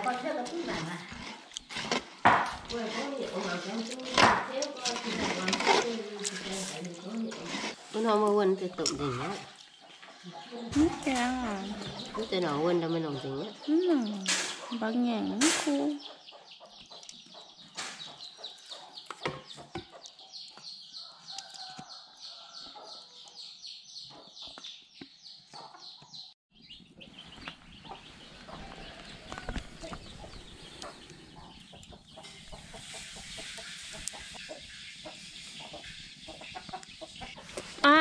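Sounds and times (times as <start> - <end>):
metal spoon scraping bowl: 0.0 - 9.8
wood fire crackling: 0.0 - 9.8
chickens clucking: 0.0 - 38.0.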